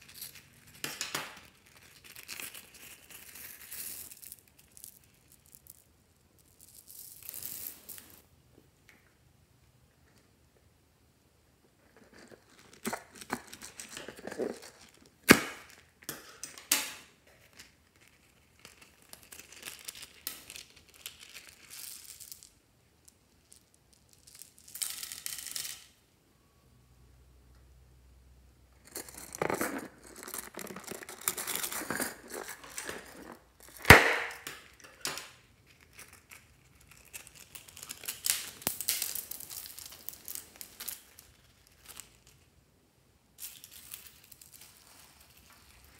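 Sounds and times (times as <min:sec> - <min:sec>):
crinkly handling noise: 0:00.0 - 0:08.2, 0:11.6 - 0:24.7, 0:28.8 - 0:42.5, 0:43.4 - 0:45.9
modelling clay being torn: 0:28.9 - 0:42.4.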